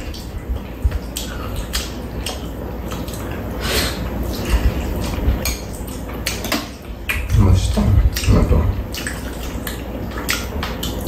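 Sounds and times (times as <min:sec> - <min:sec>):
wet chewing and slurping: 0:00.0 - 0:11.0
chopsticks clicking against bowls: 0:05.4 - 0:07.2
low rumble: 0:06.8 - 0:09.0.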